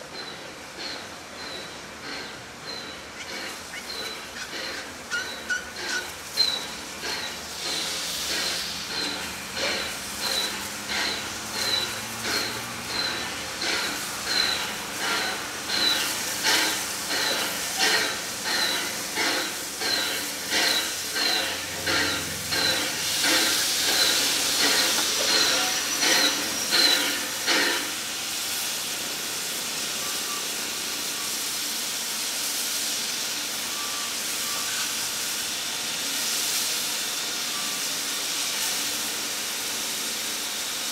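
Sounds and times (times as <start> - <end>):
steam hissing: 0.0 - 40.9
steam locomotive chuffing: 0.0 - 40.9.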